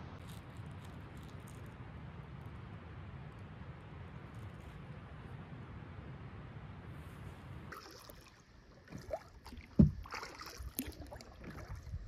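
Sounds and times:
paddle splashing in water: 0:07.7 - 0:12.0.

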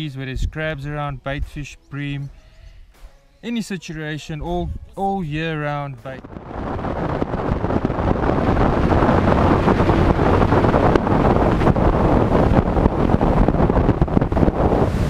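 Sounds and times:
wind rushing over microphone: 0:00.0 - 0:01.7, 0:04.4 - 0:15.0
outboard motor humming: 0:06.2 - 0:15.0.

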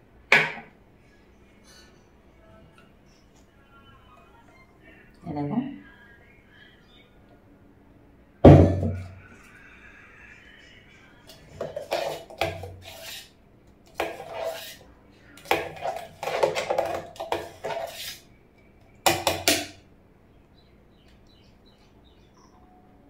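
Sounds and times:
metal spoon scraping steel vessel: 0:11.3 - 0:13.3, 0:13.9 - 0:14.8, 0:15.4 - 0:18.2.

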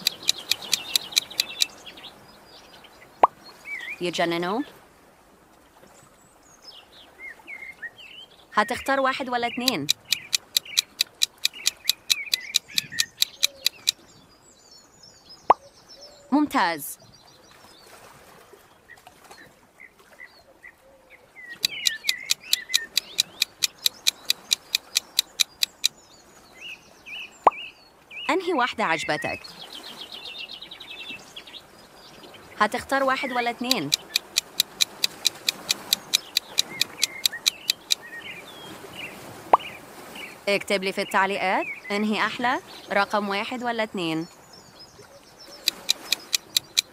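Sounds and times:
rapid clock ticking: 0:00.0 - 0:01.7, 0:09.6 - 0:14.0, 0:21.6 - 0:25.9, 0:33.6 - 0:38.0, 0:45.6 - 0:46.9
sharp click: 0:00.0 - 0:01.7, 0:09.6 - 0:14.0, 0:21.6 - 0:25.9, 0:33.7 - 0:38.0, 0:45.7 - 0:46.9
birds chirping: 0:00.0 - 0:04.2, 0:08.6 - 0:16.5, 0:21.5 - 0:26.2, 0:30.4 - 0:46.9.

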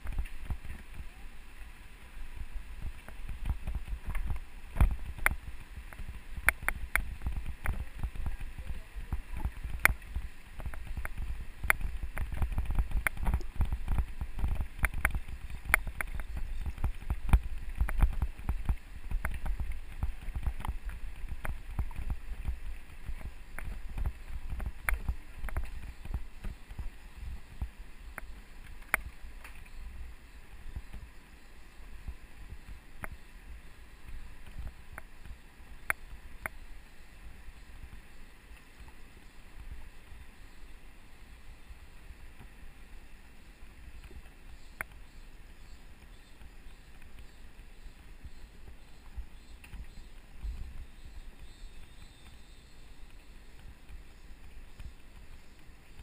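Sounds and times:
bike knocking and rattling: 0:02.8 - 0:26.9
bike rolling over rocky road: 0:02.8 - 0:29.8.

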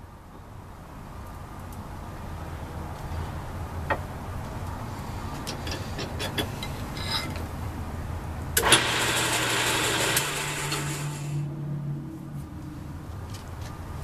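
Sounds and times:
wood lathe whirring: 0:08.6 - 0:11.4.

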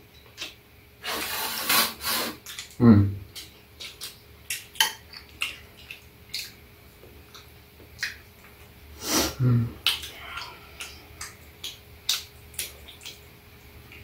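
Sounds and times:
low voice murmur: 0:02.8 - 0:03.2, 0:09.4 - 0:10.6.

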